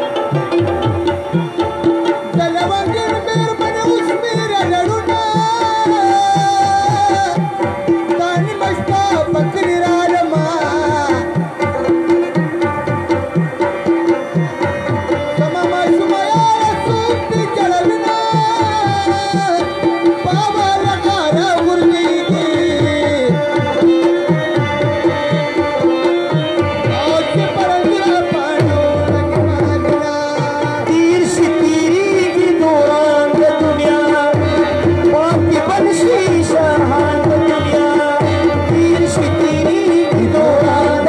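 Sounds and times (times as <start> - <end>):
tabla drums: 0.0 - 41.0.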